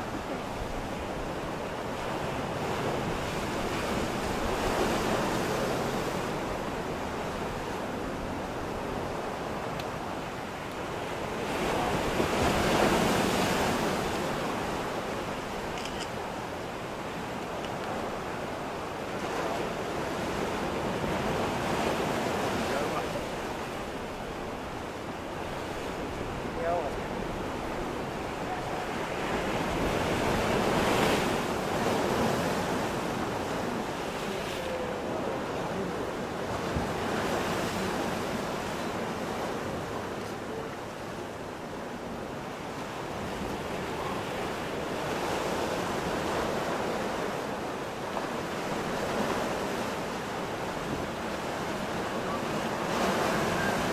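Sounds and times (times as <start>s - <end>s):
ocean surf breaking on shore: 0.0s - 53.9s.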